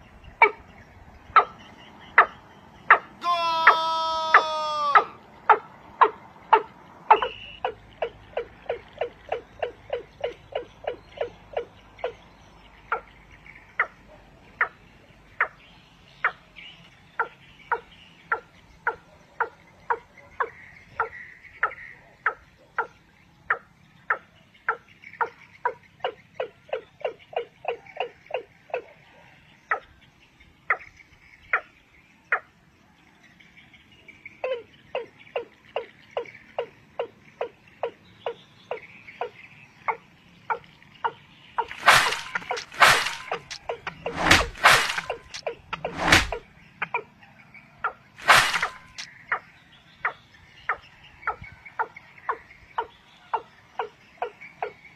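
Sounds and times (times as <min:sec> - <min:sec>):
game bird clucking: 0:02.2 - 0:12.2, 0:41.6 - 0:47.0, 0:47.8 - 0:49.1.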